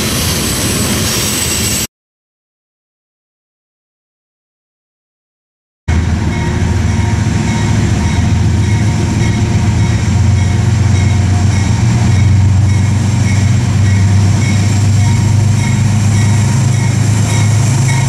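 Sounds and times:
diesel locomotive drone: 0.0 - 1.9, 5.9 - 18.0.

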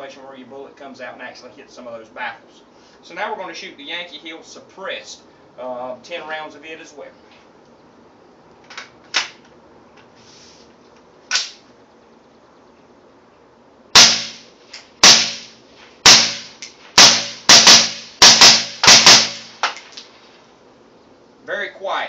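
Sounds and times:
suppressed rifle shots: 14.0 - 20.0.

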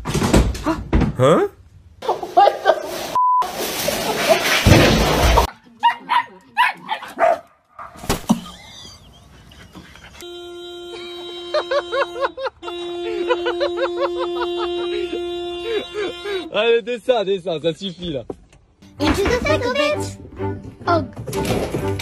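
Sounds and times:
dog barking: 5.8 - 8.0
car horn: 10.2 - 16.6.

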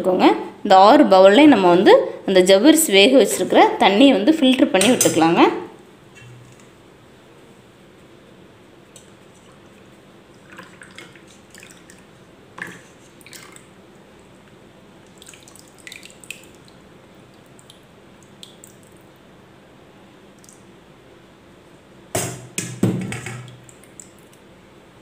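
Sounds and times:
water dripping into bowls: 8.9 - 19.3, 20.3 - 20.7, 23.0 - 24.5.

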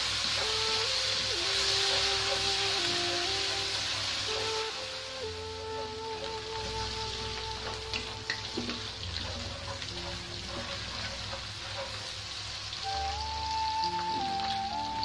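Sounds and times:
onions sizzling in hot oil: 0.0 - 15.0
soft background music: 0.0 - 15.0
wooden spatula scraping pan: 8.6 - 12.4.

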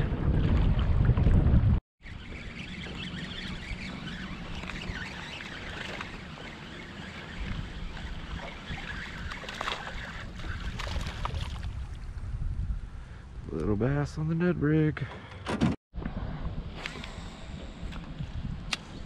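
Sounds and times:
waves lapping against metal boat: 0.0 - 12.1
wind: 0.0 - 19.0.

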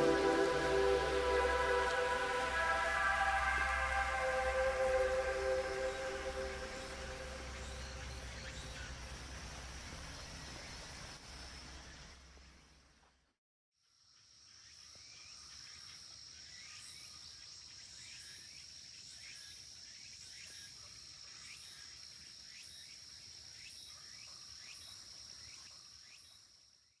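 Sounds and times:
insect high-pitched whine: 0.0 - 12.0.

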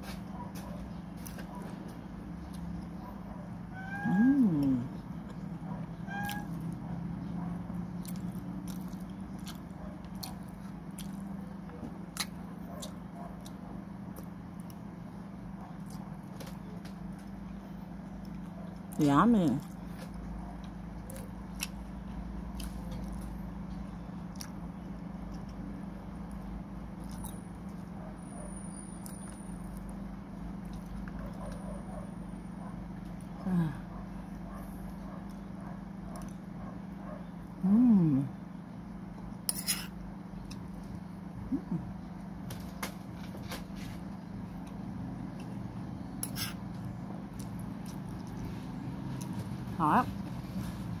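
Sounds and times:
steady low hum: 0.0 - 51.0
chewing and mouth sounds: 7.4 - 14.9, 18.0 - 28.0, 29.0 - 31.8, 46.2 - 49.6.

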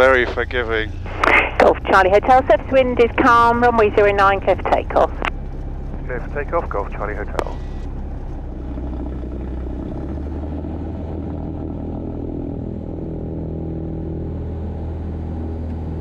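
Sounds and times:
propeller plane engine drone: 0.0 - 16.0.

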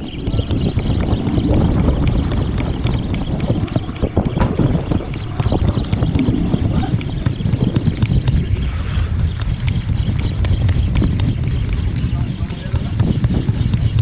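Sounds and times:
wind buffeting microphone: 0.0 - 14.0
knocks and clicks: 0.6 - 8.6.

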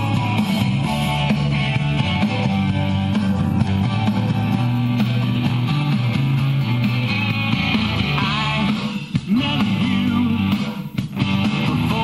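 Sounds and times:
rock and roll record playing: 0.0 - 12.0.

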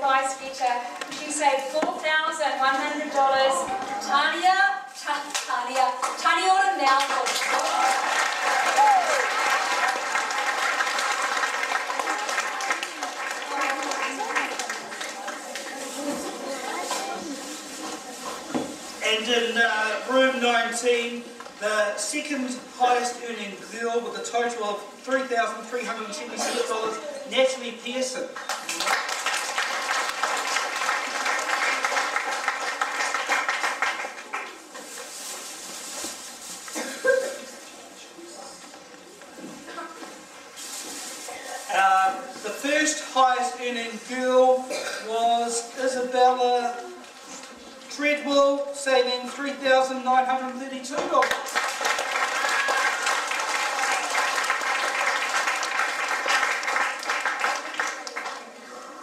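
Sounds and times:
children clapping: 7.0 - 15.8, 28.4 - 34.6, 51.2 - 58.6
schoolchildren applauding: 7.1 - 15.7, 28.4 - 34.6, 51.2 - 58.7.

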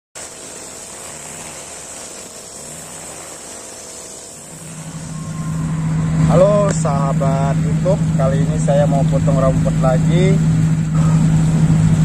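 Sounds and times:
brush cutter cutting grass: 0.2 - 12.0
low steady hum: 4.4 - 12.0.

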